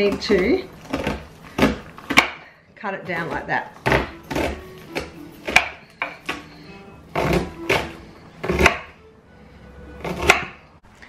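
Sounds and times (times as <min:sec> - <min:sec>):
knife cutting on wooden board: 0:03.8 - 0:08.9, 0:10.0 - 0:10.6.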